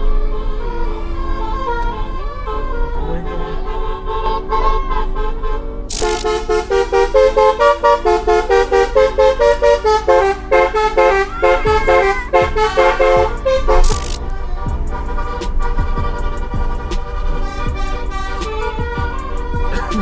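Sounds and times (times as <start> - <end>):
electronic music with beat: 5.9 - 7.8, 11.1 - 20.0
synth melody: 5.9 - 20.0.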